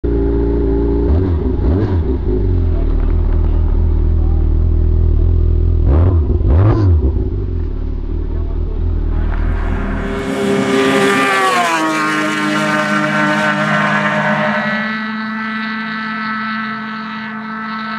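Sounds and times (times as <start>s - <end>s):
engine throttle blips: 0.0s - 17.9s
snowmobile passing at high revs: 9.1s - 17.9s.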